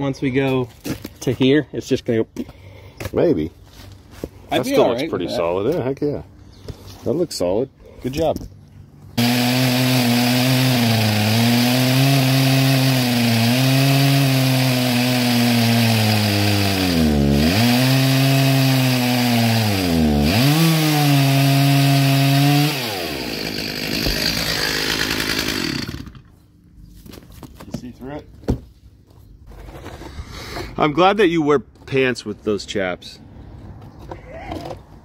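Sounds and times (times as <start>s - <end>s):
chainsaw cutting wood: 9.2s - 26.4s.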